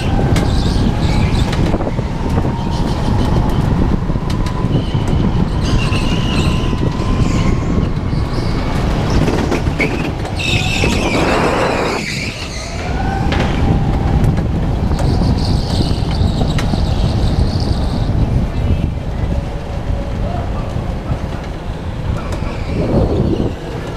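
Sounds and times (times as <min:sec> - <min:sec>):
go-kart engine rumble: 0:00.0 - 0:23.9
tyres squealing: 0:04.8 - 0:13.1.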